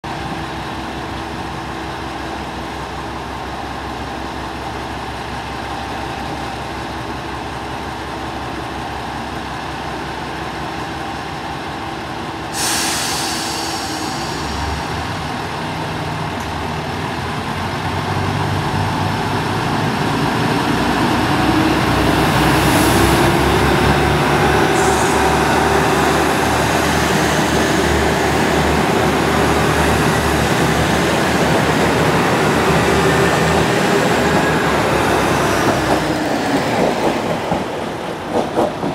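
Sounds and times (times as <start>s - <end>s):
diesel railcar idling hum: 0.1s - 36.7s
air brakes hissing: 12.5s - 15.5s, 24.6s - 28.3s.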